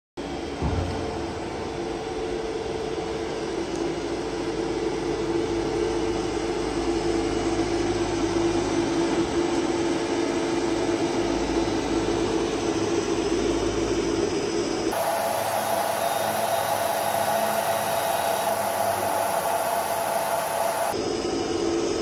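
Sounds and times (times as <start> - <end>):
machine hum: 14.9 - 21.0.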